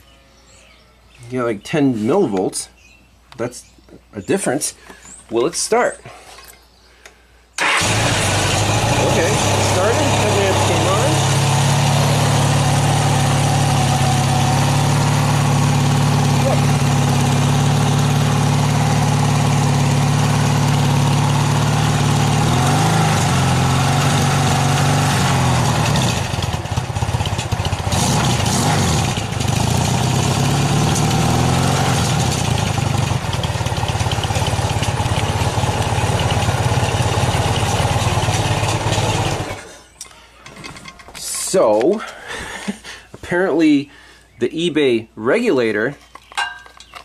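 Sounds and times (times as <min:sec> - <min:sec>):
motorcycle engine idling: 0:07.6 - 0:39.6.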